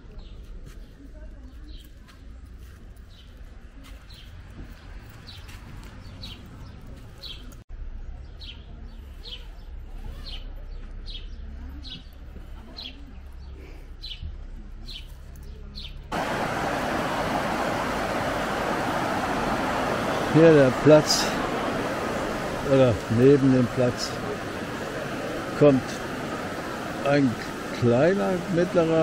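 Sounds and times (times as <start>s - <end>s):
river rushing over rocks: 16.1s - 29.0s.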